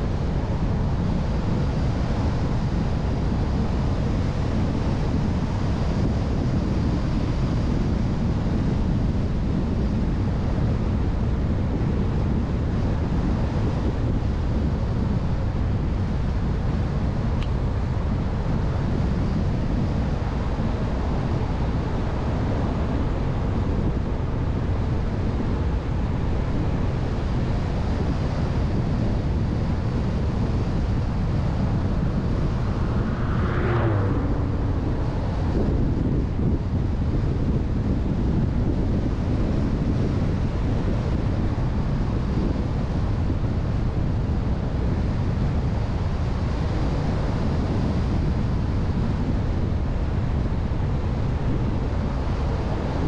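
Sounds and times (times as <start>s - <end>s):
road and engine noise: 0.0s - 53.0s
wind rush on microphone: 0.0s - 53.0s
brief whoosh: 31.6s - 36.6s.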